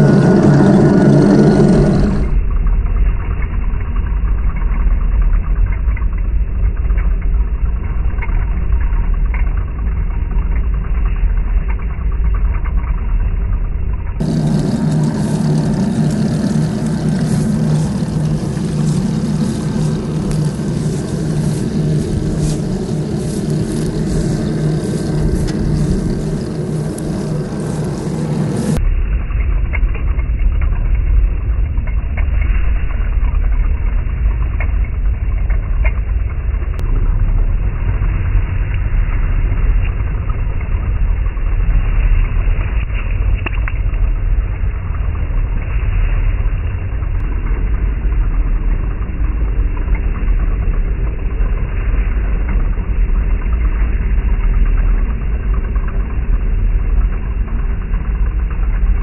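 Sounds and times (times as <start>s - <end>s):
toy tank rumbling: 0.0s - 59.0s
running gear clicking: 14.2s - 28.8s.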